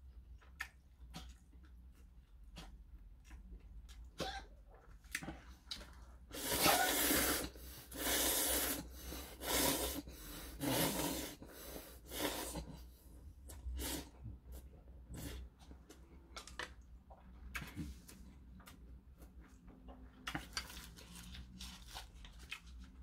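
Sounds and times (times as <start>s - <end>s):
person slurping noodles: 6.3s - 12.8s.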